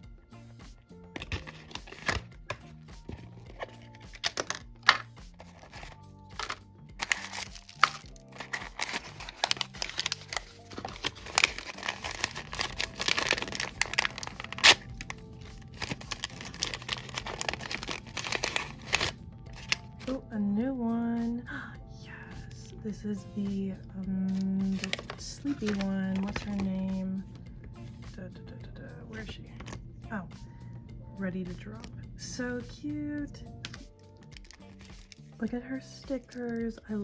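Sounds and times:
background music: 0:00.0 - 0:37.0
packaging tearing and crinkling: 0:01.2 - 0:02.6, 0:03.5 - 0:20.0, 0:24.7 - 0:26.6, 0:34.3 - 0:35.3.

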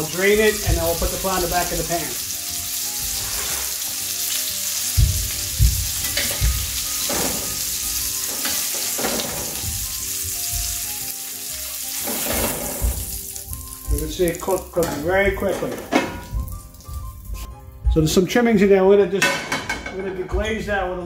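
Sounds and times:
fish frying sizzle: 0:00.0 - 0:17.5
metal spatula knocking in pan: 0:05.0 - 0:07.4, 0:19.2 - 0:20.1.

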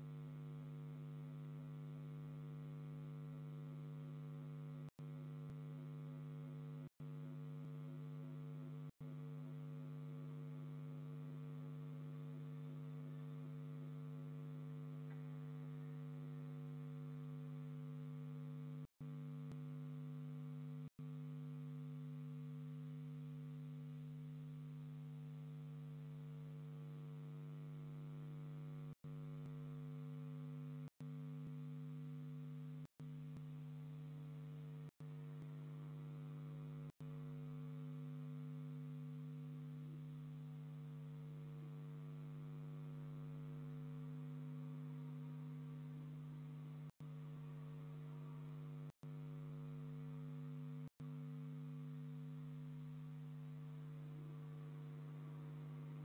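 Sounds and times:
electrical hum: 0:34.5 - 0:56.0.

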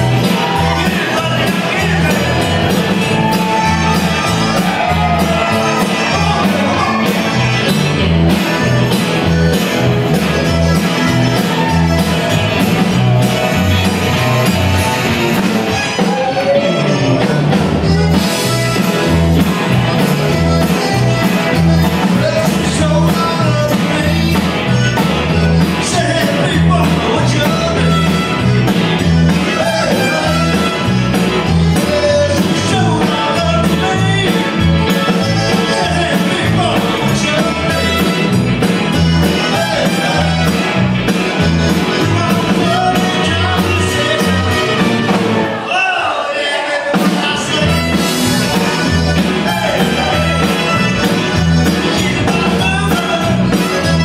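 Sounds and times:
accordion: 0:00.0 - 0:54.0
rock band playing live: 0:00.0 - 0:54.0.

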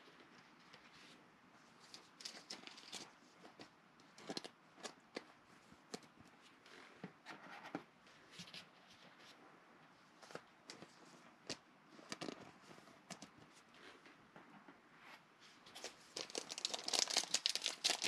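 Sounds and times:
plastic card sleeve handled: 0:15.8 - 0:18.0
trading cards rustling and clicking: 0:15.8 - 0:18.0.

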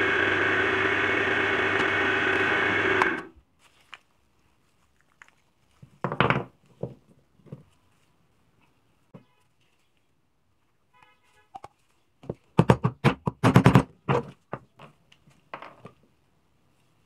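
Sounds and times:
drill press motor whine: 0:00.0 - 0:03.4.

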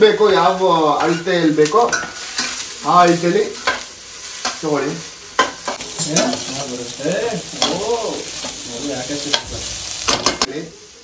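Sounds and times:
vegetables sizzling in butter: 0:00.0 - 0:11.0
metal spoon scraping a pan: 0:01.0 - 0:04.7, 0:05.4 - 0:10.5.

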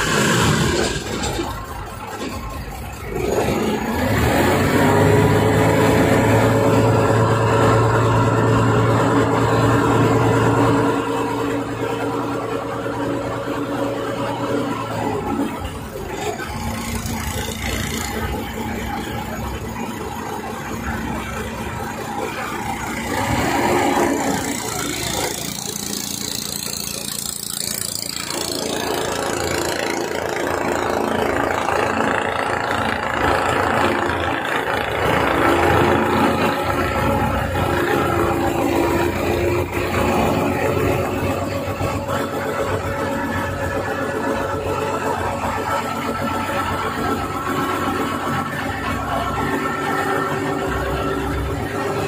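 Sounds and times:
ferry engine running: 0:00.0 - 0:52.0.

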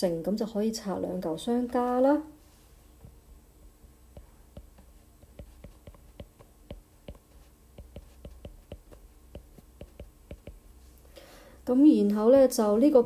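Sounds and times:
stylus tapping on glass screen: 0:04.2 - 0:10.6.

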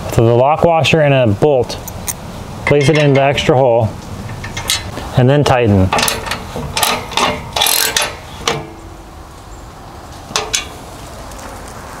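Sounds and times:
socket ratchet clicking: 0:06.0 - 0:08.6.

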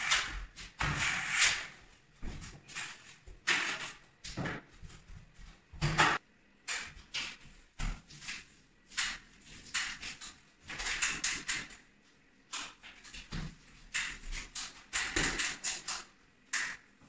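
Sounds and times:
paint roller wet rolling strokes: 0:08.1 - 0:11.2.

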